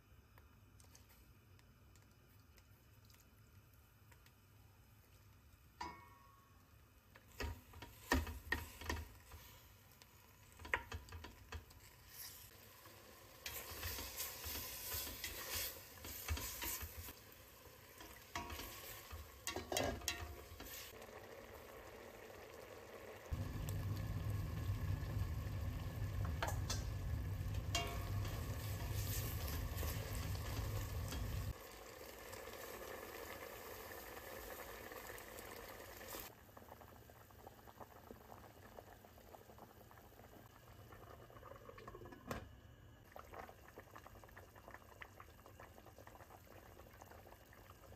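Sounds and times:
food sizzling in a pot: 0:07.2 - 0:40.5
steady low hum: 0:23.3 - 0:31.6.

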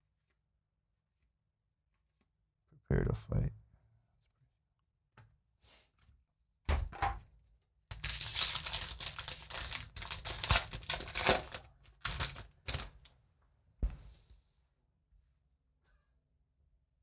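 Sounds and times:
foil wrapper tearing and crinkling: 0:07.9 - 0:13.0.

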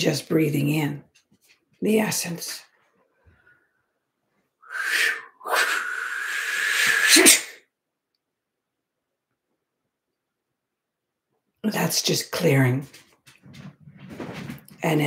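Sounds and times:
whistling breath: 0:04.6 - 0:07.6.

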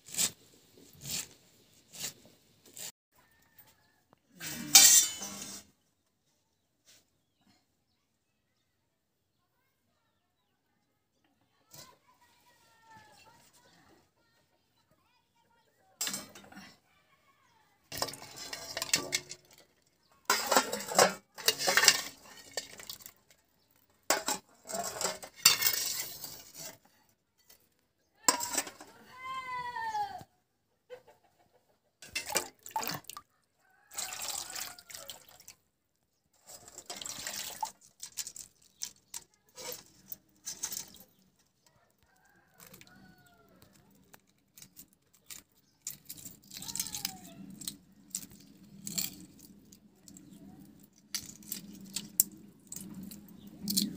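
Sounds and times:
water splashing in a metal pan: 0:17.9 - 0:19.6, 0:20.2 - 0:23.4, 0:32.0 - 0:33.2, 0:33.9 - 0:35.6, 0:36.5 - 0:38.6
hens clucking: 0:30.8 - 0:32.0
rooster crowing: 0:33.6 - 0:35.2.

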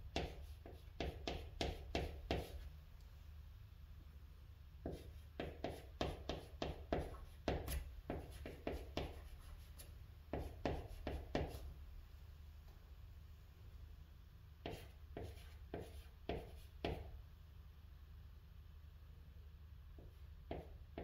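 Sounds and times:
chalk tapping and scraping on board: 0:00.1 - 0:02.7, 0:04.8 - 0:11.7, 0:14.6 - 0:17.1, 0:20.0 - 0:21.0.

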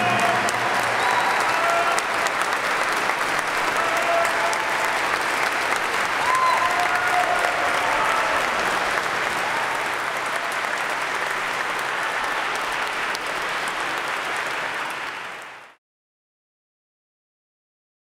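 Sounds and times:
audience applauding: 0:00.0 - 0:15.8.

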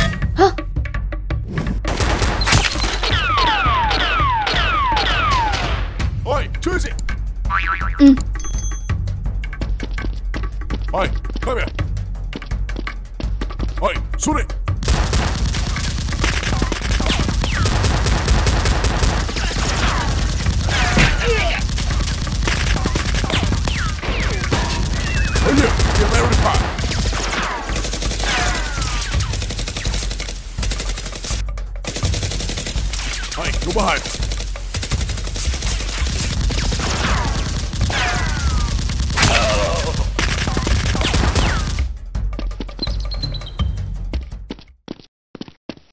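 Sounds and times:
rapid gunfire: 0:01.9 - 0:05.7, 0:14.8 - 0:41.9.

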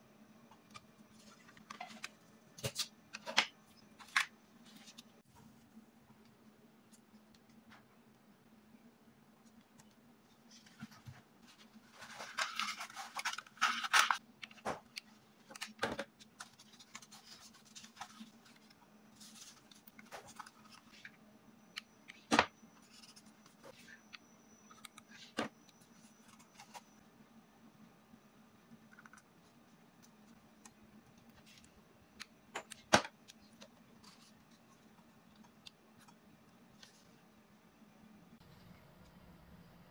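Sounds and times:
paper rustling and crinkling: 0:10.5 - 0:21.1.

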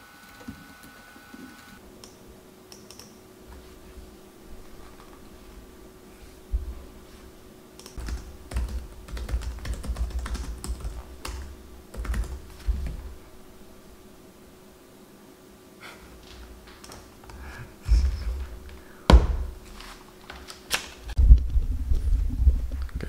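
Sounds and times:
laptop keyboard typing: 0:02.0 - 0:03.2, 0:07.8 - 0:13.0, 0:16.7 - 0:17.4
dull thumps: 0:17.9 - 0:19.6.

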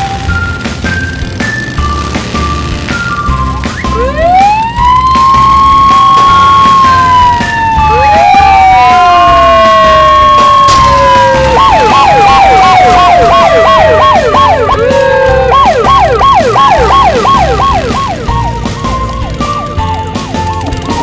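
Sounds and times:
tone sliding down in pitch: 0:02.9 - 0:18.6
cartoon yelp siren: 0:03.8 - 0:20.4.

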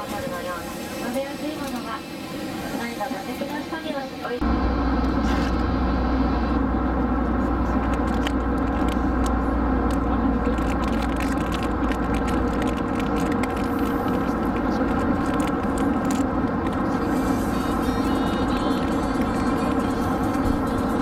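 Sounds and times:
airliner cabin drone: 0:00.0 - 0:21.0
person eating with crackles: 0:07.6 - 0:20.0.

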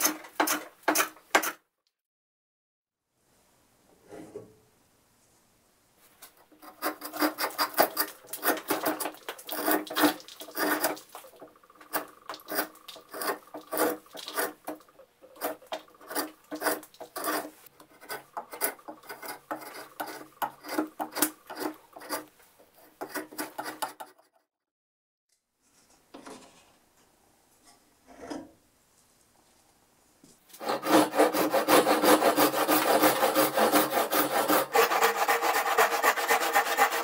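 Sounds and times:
drawknife scraping bark: 0:06.6 - 0:11.1, 0:11.8 - 0:24.4, 0:30.6 - 0:37.0.

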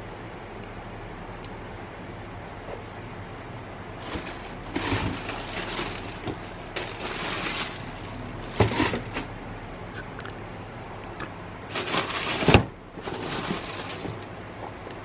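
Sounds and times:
steady low hum: 0:00.0 - 0:15.0
tissue paper rustling: 0:04.0 - 0:09.3, 0:11.7 - 0:14.3.

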